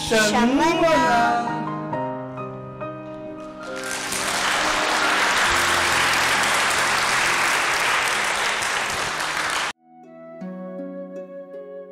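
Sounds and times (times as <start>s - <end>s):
soft background music: 0.0s - 8.6s, 9.5s - 11.9s
audience applauding: 3.6s - 9.8s.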